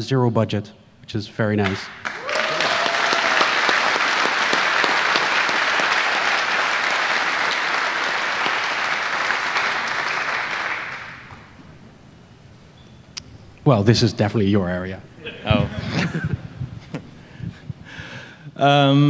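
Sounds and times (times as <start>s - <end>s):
audience applauding: 1.6s - 11.5s.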